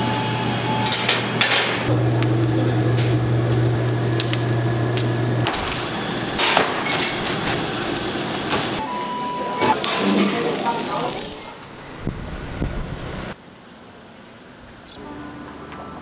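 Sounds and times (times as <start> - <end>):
low machine hum: 0.0 - 6.5.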